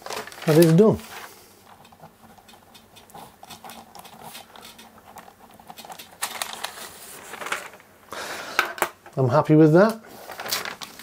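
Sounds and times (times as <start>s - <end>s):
paper rustling: 0.0s - 1.4s, 5.7s - 7.9s, 10.1s - 11.0s
ballpoint pen ticks and scrapes: 1.7s - 6.2s.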